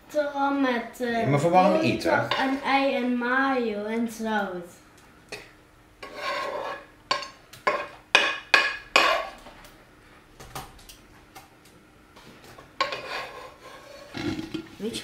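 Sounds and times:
metal spoon scraping frying pan: 2.3 - 2.6, 6.0 - 8.3, 8.9 - 9.4, 12.8 - 14.7.

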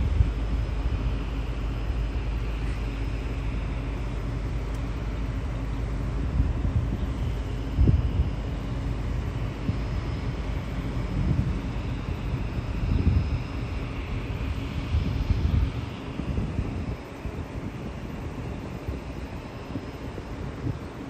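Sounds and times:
wind on microphone: 0.0 - 1.2, 6.1 - 21.0
distant floatplane droning: 0.0 - 21.0.

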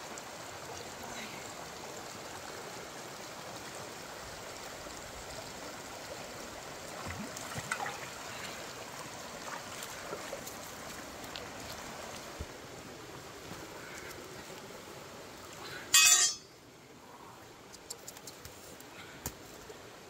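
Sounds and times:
stream water rushing: 0.0 - 20.0.

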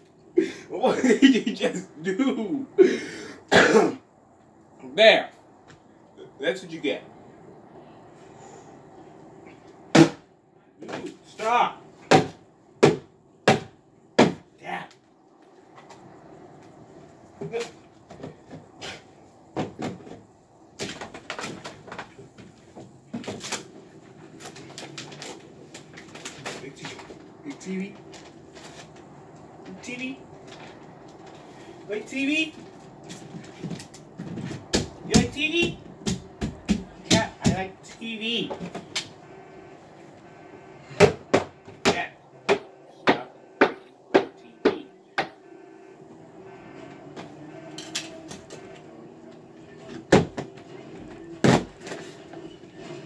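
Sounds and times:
objects knocking and clattering: 19.5 - 23.7
hard blows on television: 38.6 - 53.0.

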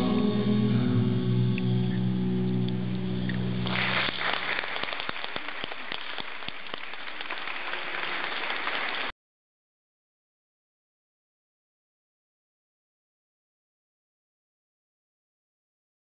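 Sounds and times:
sustained music tones: 0.0 - 4.0
audience applauding: 3.6 - 9.1.

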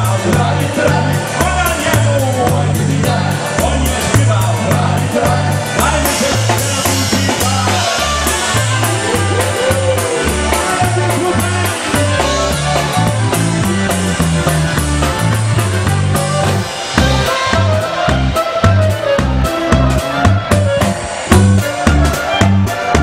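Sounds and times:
oom-pah bass line: 0.0 - 23.0
polka band playing: 0.0 - 23.0
trumpet melody: 5.2 - 23.0
clarinet melody: 7.6 - 23.0.

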